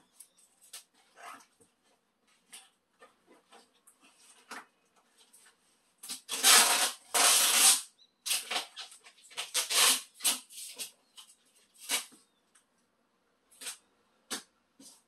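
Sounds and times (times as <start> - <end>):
packing tape ripped off roll: 6.0 - 12.2, 13.6 - 14.5.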